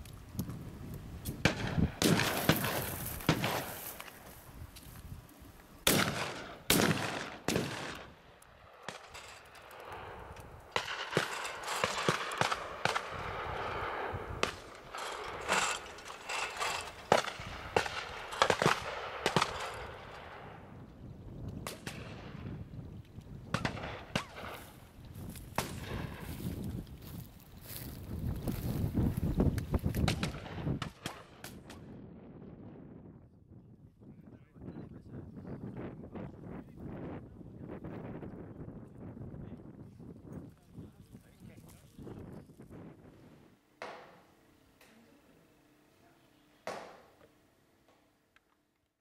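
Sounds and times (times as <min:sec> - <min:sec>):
shotgun shots: 0:01.4 - 0:03.9, 0:05.8 - 0:20.6, 0:23.5 - 0:24.8, 0:30.0 - 0:31.8.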